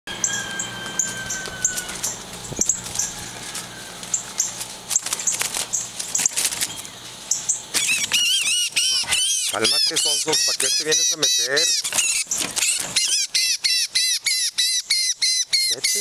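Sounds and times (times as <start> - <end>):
wings flapping against cage bars: 4.5 - 6.9, 11.9 - 13.0.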